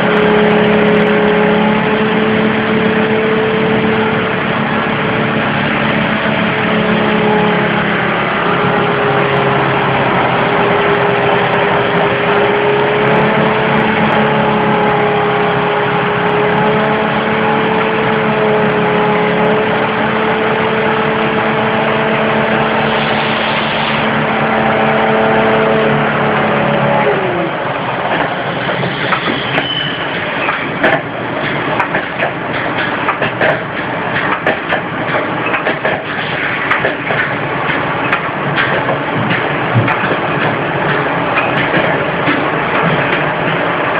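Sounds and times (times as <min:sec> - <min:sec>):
machinery humming: 0:00.0 - 0:43.9
clanks and knocks: 0:30.4 - 0:43.6.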